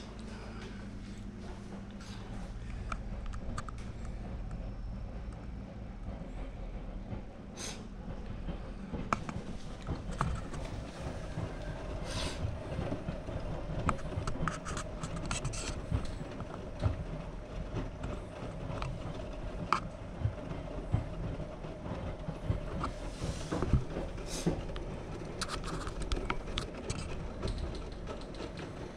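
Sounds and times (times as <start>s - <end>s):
washing machine drum turning: 6.2s - 28.9s.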